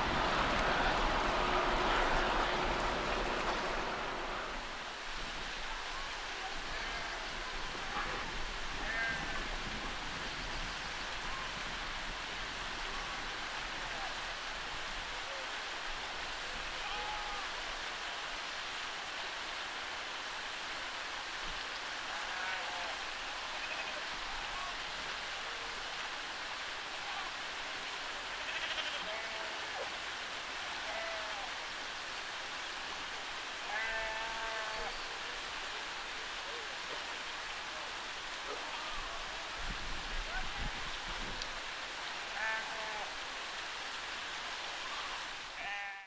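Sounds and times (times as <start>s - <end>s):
steady hiss: 0.0s - 46.0s
sheep bleating: 8.8s - 9.4s, 28.3s - 29.6s, 33.6s - 34.9s, 45.6s - 46.0s.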